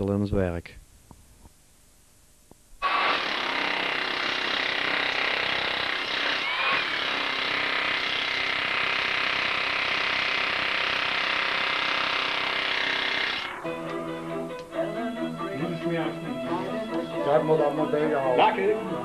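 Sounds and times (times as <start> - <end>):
demolition hammer chipping concrete: 2.8 - 13.5.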